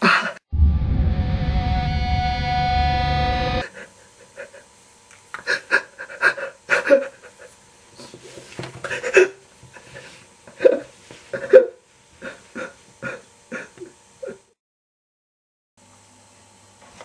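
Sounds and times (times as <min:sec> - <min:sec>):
man sobbing: 0:05.4 - 0:07.5.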